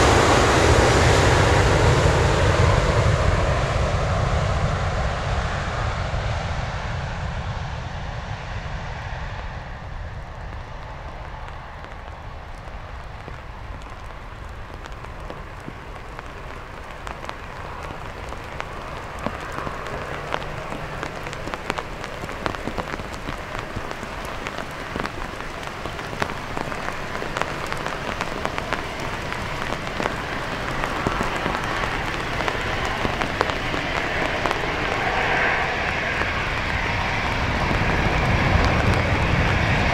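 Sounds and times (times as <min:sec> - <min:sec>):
jet engines roaring: 0:00.0 - 0:39.9
rain tapping on umbrella: 0:10.1 - 0:39.9.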